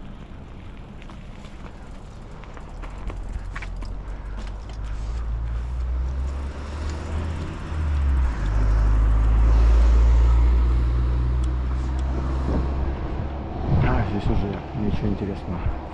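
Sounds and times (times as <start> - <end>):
road noise: 0.0 - 15.9
wind buffeting microphone: 11.3 - 15.9.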